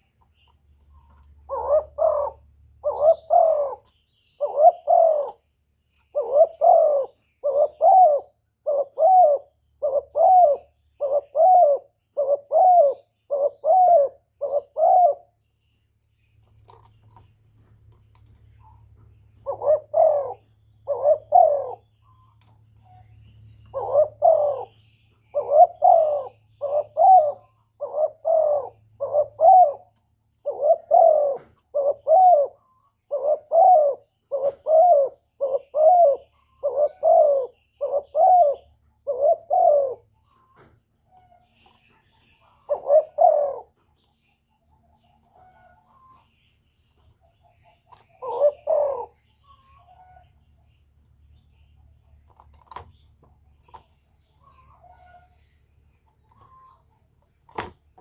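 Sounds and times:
dove cooing: 0.9s - 15.4s, 19.4s - 22.1s, 22.9s - 40.2s, 41.1s - 43.8s, 47.6s - 50.3s.

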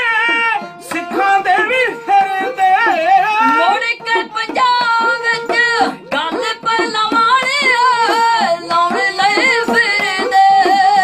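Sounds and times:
men singing: 0.0s - 3.8s, 7.6s - 11.0s
hand drums tapped: 0.0s - 11.0s.

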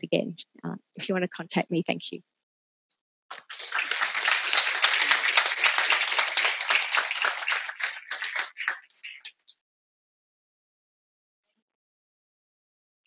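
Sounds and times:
audience applauding: 3.3s - 9.3s.

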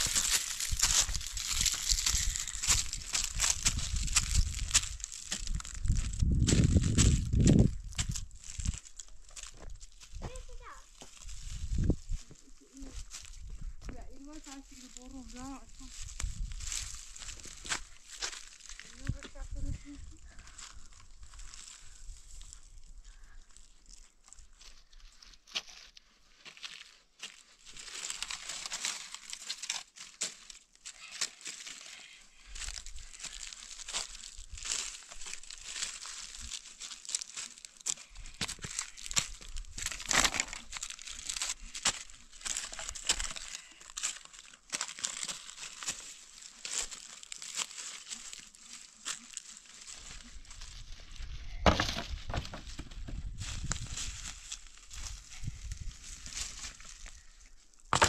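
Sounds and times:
footsteps crunching dry leaves: 0.0s - 58.0s
leaves and sticks rustling: 0.0s - 58.0s.

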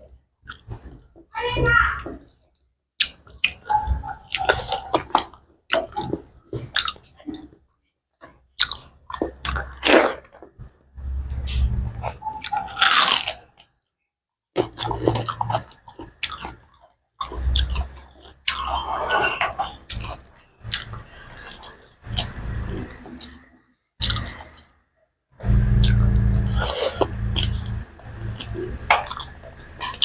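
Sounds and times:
chewing with wet mouth smacks: 8.6s - 10.5s, 14.6s - 23.4s, 24.0s - 24.6s
loud crunch of onion bitten: 12.5s - 13.7s.

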